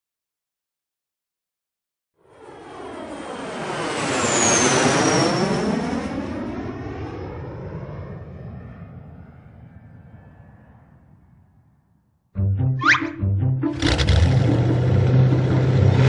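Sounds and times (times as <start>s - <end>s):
airplane flying past: 2.2s - 11.6s, 12.7s - 16.0s.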